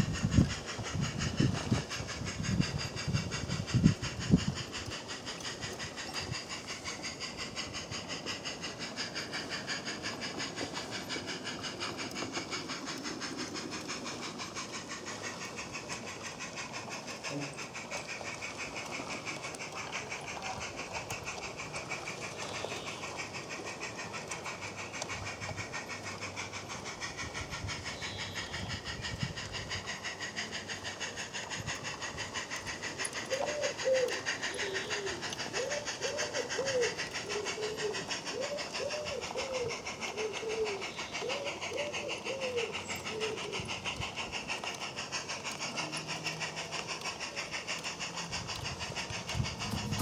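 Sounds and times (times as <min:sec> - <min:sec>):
model steam locomotive chuffing: 0:00.0 - 0:50.0
bird calling: 0:21.5 - 0:23.7, 0:27.8 - 0:29.1, 0:32.8 - 0:48.2.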